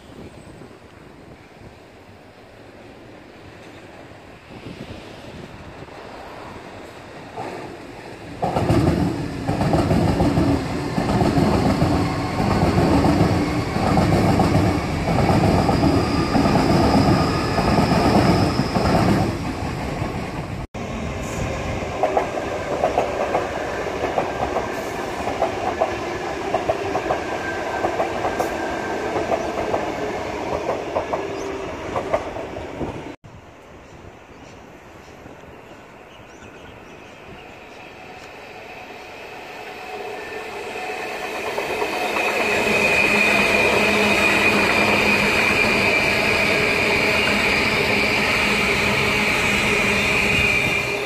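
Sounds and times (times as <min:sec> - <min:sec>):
train wheels clattering on rails: 0:08.4 - 0:20.6, 0:21.3 - 0:33.0.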